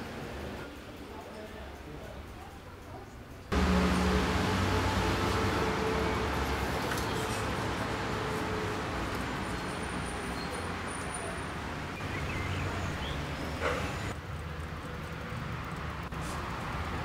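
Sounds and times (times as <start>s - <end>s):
passing cars rumbling: 3.5s - 17.0s.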